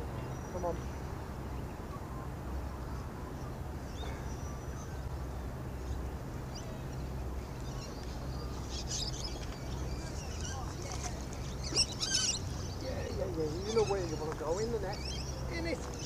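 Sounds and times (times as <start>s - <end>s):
faint bird chirps: 5.8s - 14.2s.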